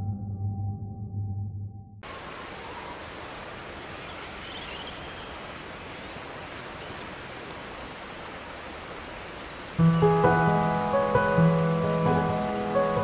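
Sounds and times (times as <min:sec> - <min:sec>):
outdoor ambient hiss: 0:02.0 - 0:13.0
bird chirping: 0:03.8 - 0:07.5, 0:09.3 - 0:13.0.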